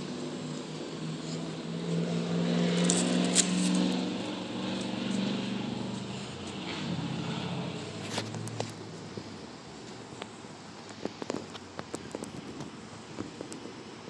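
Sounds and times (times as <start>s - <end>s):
car engine passing: 0.0s - 9.6s.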